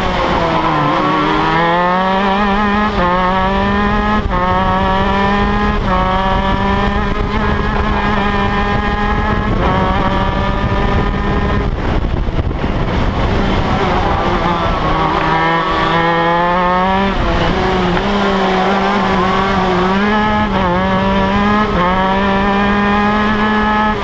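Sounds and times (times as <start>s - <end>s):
kart engine accelerating hard: 0.0s - 24.0s.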